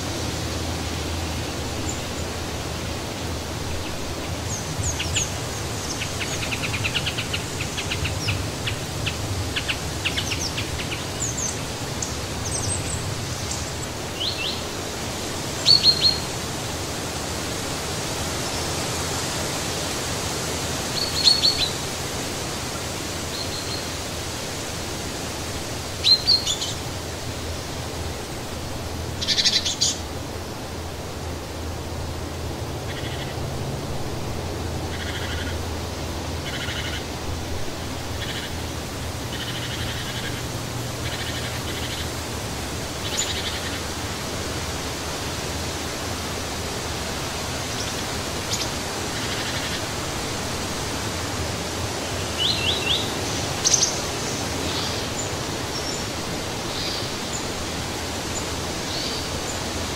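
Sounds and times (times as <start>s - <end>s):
wind in trees: 0.0s - 59.9s
small birds chirping: 3.8s - 14.8s, 15.6s - 16.3s, 20.9s - 21.8s, 29.1s - 30.1s, 42.9s - 44.0s, 51.6s - 57.6s.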